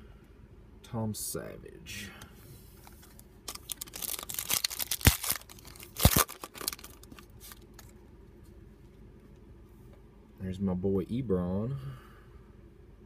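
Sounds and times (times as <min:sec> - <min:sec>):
foil wrapper crinkling: 0:02.8 - 0:07.9.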